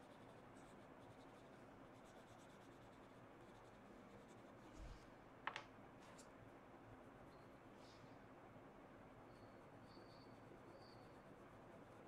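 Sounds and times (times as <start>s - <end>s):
pastel scratching on paper: 0.0s - 4.9s.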